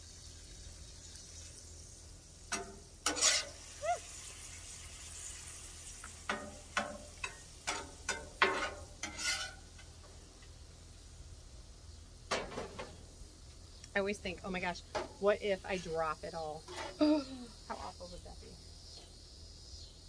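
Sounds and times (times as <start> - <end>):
food sizzling on griddle: 0.0 - 11.2
spatula scraping on griddle: 2.5 - 3.6, 6.3 - 9.9, 16.6 - 17.0.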